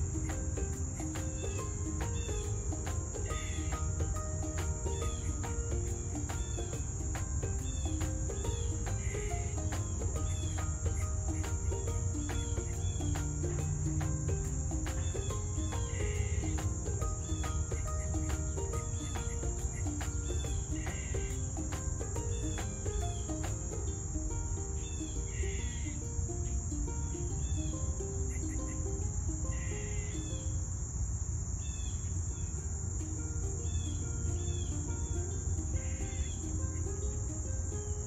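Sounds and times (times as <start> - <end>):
soft background music: 0.0 - 29.6
high-pitched insect drone: 0.0 - 37.4
insect chirps: 0.0 - 38.0.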